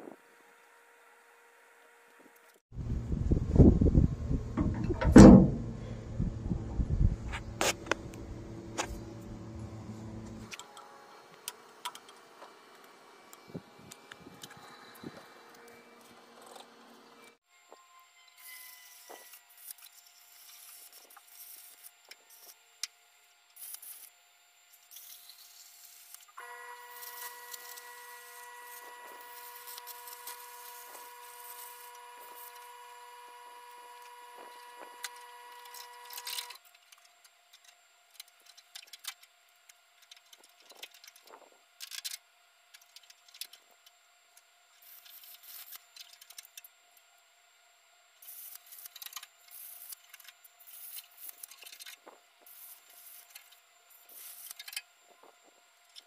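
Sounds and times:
steady pitched hum: 0:02.7 - 0:17.4
welder crackling: 0:04.3 - 0:10.6, 0:24.8 - 0:37.0.

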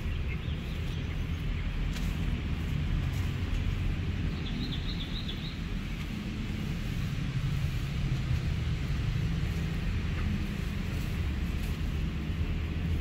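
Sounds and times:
low outdoor rumble: 0:00.0 - 0:13.0
high twittering chirp: 0:04.2 - 0:05.8.

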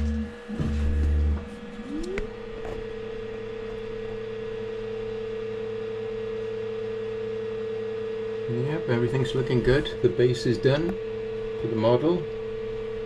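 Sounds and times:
short loud low buzzes: 0:00.0 - 0:04.9
printer motor whine: 0:00.0 - 0:13.0.

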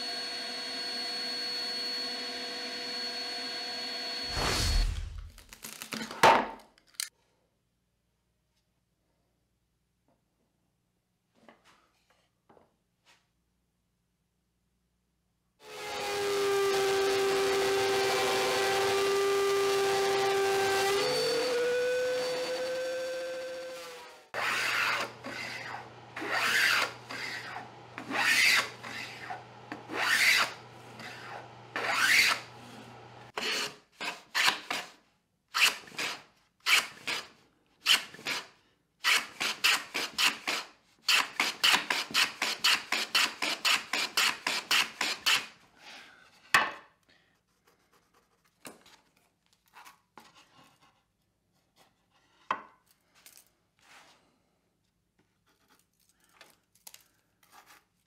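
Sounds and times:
hand plane shaving wood: 0:22.4 - 0:34.9.

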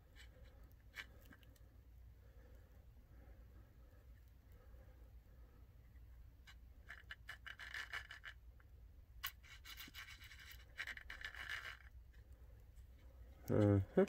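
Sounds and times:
plastic scratching and rubbing: 0:06.4 - 0:13.1.

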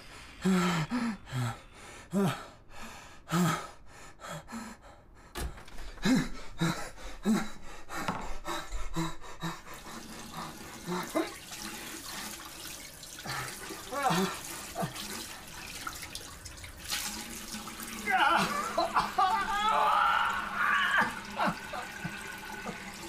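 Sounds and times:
gasps and grunting breaths: 0:05.9 - 0:12.2, 0:13.2 - 0:15.6
hissing watery noise: 0:09.5 - 0:23.0.

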